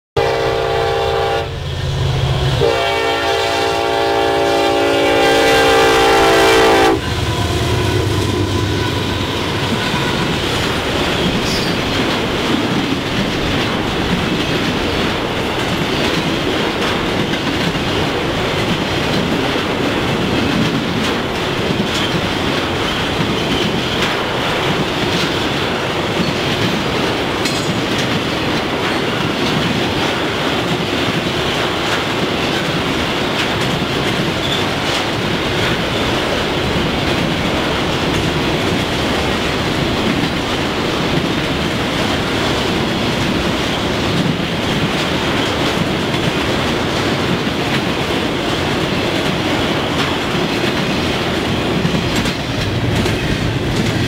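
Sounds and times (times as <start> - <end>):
train horn blasts: 0.2 - 1.6, 2.4 - 10.4
locomotives rumbling past: 0.3 - 54.0
wheels clacking on rail joints: 7.6 - 54.0.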